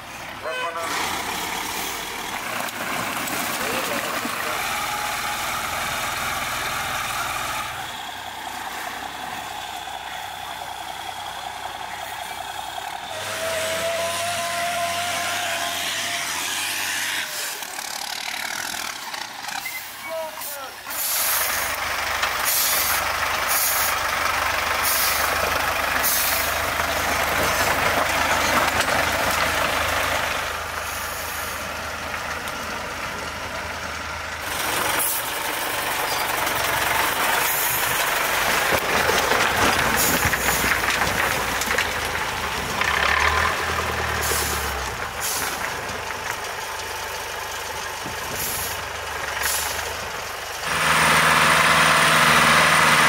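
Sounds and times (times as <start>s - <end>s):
diesel engine under load: 0.0s - 53.0s
tyres grinding over rock: 0.9s - 5.0s, 24.8s - 30.4s, 34.4s - 48.6s.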